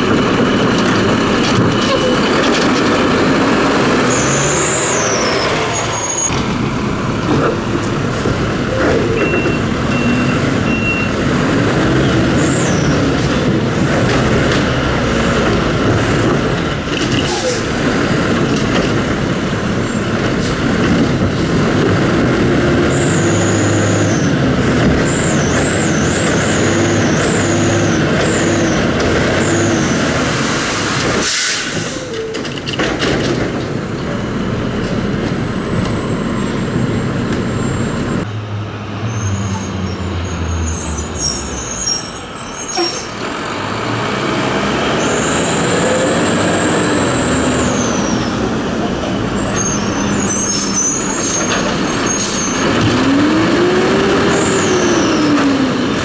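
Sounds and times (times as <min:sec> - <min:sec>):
truck diesel engine revving: 0:00.0 - 0:08.7, 0:17.5 - 0:32.0, 0:39.7 - 0:56.0.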